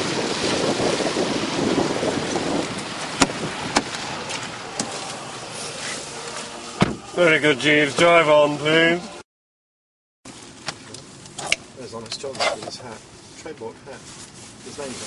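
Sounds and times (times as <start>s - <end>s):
wind and rain on microphone: 0.0s - 7.5s
car door clicks: 6.8s - 7.0s.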